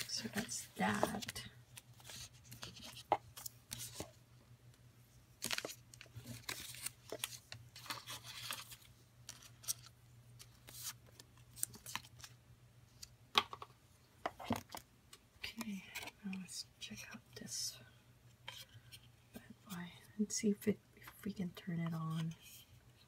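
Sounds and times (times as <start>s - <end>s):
paper and cardboard rustling: 0.0s - 4.2s, 5.4s - 12.3s
low steady hum: 0.0s - 23.0s.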